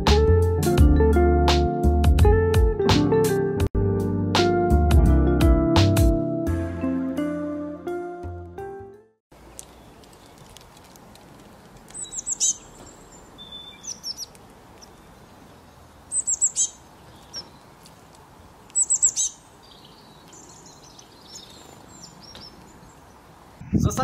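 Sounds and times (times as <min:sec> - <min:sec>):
small songbird chirping: 0:09.4 - 0:10.7, 0:11.5 - 0:23.6
bird twittering: 0:11.9 - 0:17.7, 0:18.7 - 0:23.3.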